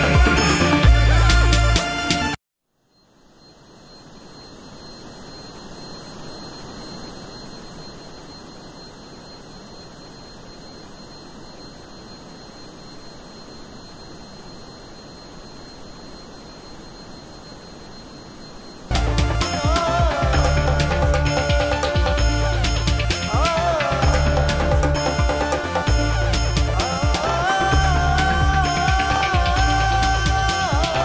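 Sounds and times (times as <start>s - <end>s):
music: 0.0s - 2.4s, 18.9s - 31.0s
faint high-pitched tones: 2.6s - 31.0s.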